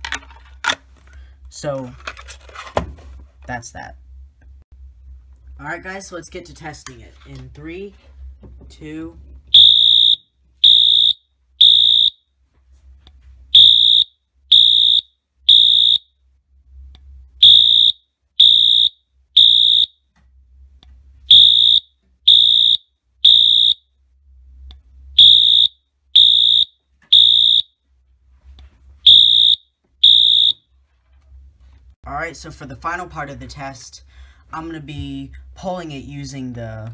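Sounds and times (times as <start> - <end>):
high-pitched fire alarm beeps: 9.5 - 12.2, 13.5 - 16.1, 17.4 - 20.0, 21.3 - 23.8, 25.2 - 27.7, 29.0 - 30.6.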